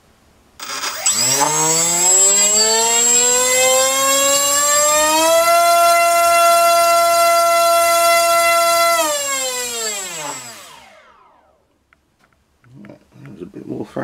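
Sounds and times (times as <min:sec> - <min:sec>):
electric motor whine: 0:00.6 - 0:11.6.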